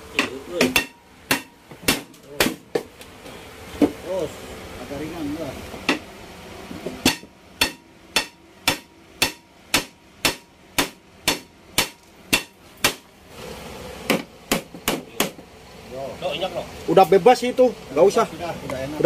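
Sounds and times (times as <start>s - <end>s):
hammer striking metal: 0.2s - 2.8s, 7.0s - 13.0s, 14.1s - 15.4s.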